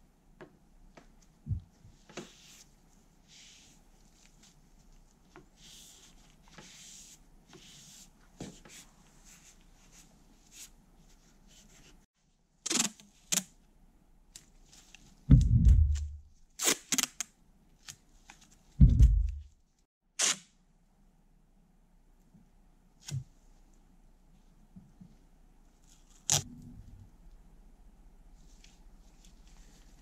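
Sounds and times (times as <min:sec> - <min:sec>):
masking tape ripping: 0:12.7 - 0:13.5, 0:16.6 - 0:17.2, 0:26.1 - 0:26.5.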